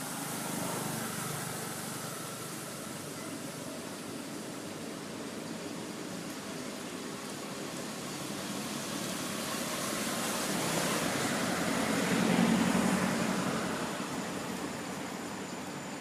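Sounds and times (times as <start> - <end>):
vehicle passing by: 0.0 - 3.1, 8.4 - 15.4.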